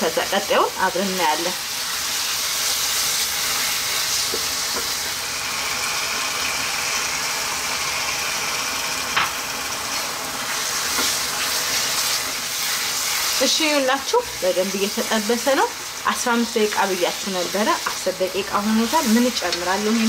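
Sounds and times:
food sizzling in a pan: 0:00.0 - 0:20.0.

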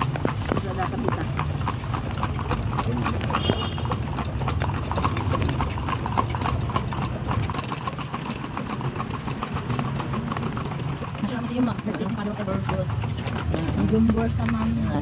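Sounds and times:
horse hooves clip-clopping on asphalt: 0:00.0 - 0:15.0.

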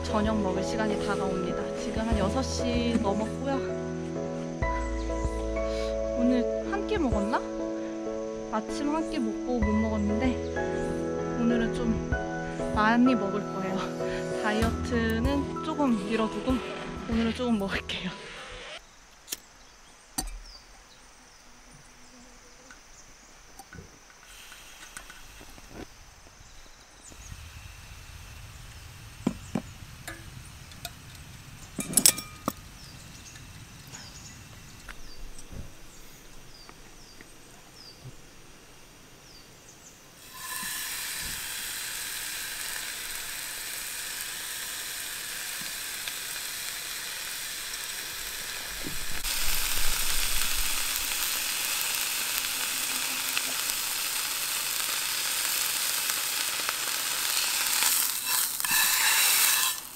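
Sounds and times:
food sizzling in a hot pan: 0:12.0 - 0:17.5, 0:26.4 - 0:37.2, 0:40.2 - 0:59.9
sharp clinks and knocks: 0:31.8 - 0:32.6.

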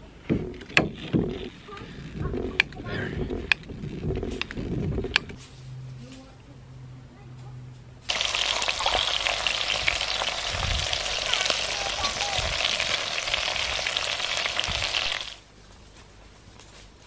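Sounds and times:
campfire crackling and hissing: 0:08.1 - 0:15.5.

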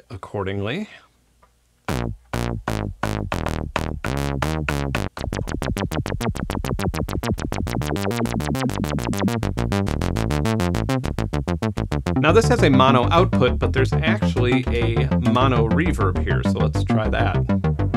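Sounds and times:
plucky synthesizer notes: 0:01.9 - 0:17.9.

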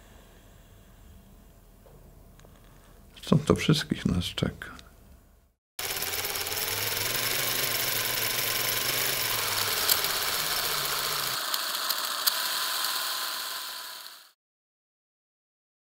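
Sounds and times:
film projector whirring and clattering: 0:05.8 - 0:14.4.

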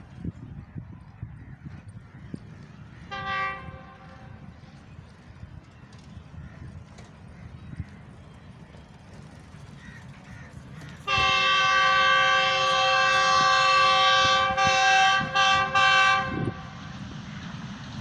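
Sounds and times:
locomotive horn blasts: 0:03.1 - 0:04.4, 0:11.0 - 0:16.8.

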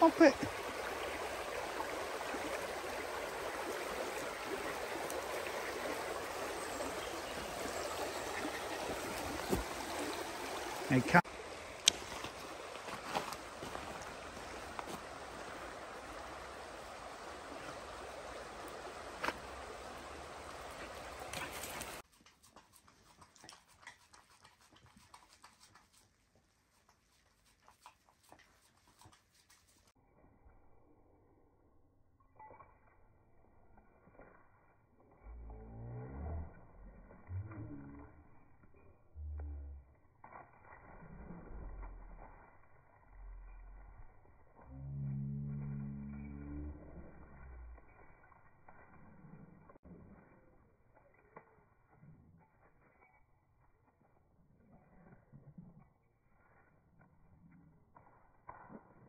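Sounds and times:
river flowing over stones: 0:00.0 - 0:22.0
puppy licking foam: 0:22.1 - 0:29.9.

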